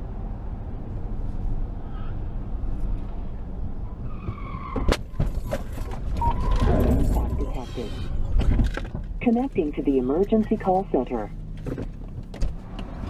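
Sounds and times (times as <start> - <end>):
road rumble inside car: 0.0 - 13.0
car tyres squealing: 3.7 - 8.4.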